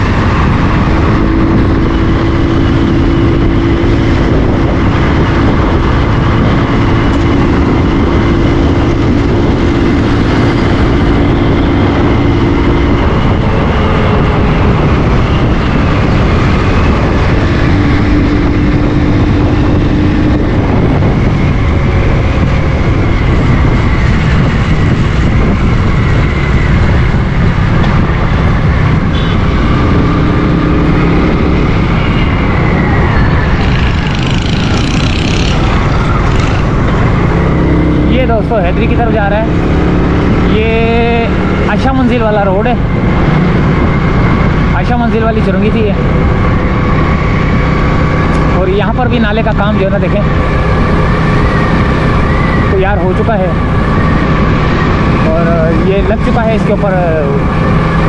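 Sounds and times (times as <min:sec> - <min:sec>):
motorcycle engine droning: 0:00.0 - 0:58.0
wind roar on microphone: 0:00.0 - 0:58.0.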